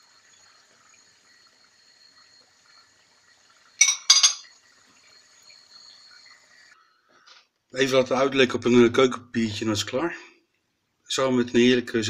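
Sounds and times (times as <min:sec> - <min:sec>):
faint deep-frying sizzle: 0:00.0 - 0:06.8
fork clinking against a pot: 0:03.8 - 0:04.5.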